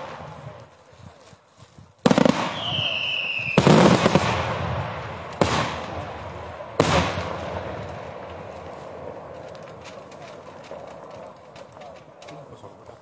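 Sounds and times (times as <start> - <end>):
fireworks bangs with echo: 0.0 - 0.6, 2.0 - 11.8
fireworks crackling: 0.0 - 0.9, 2.0 - 13.0
falling firework whistle: 2.2 - 4.0.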